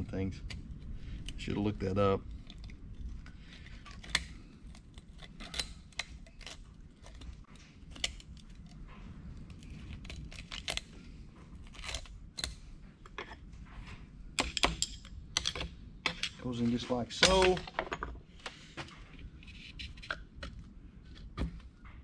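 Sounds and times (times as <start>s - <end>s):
small metallic clicks and scrapes: 0.4s - 13.4s.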